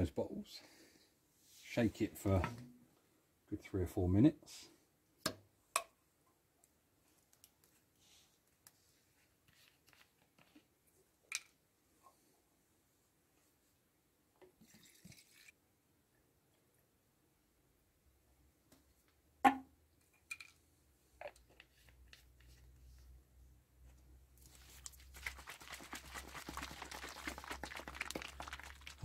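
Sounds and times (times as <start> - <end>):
soft rustle: 7.0 - 10.7, 23.8 - 27.3.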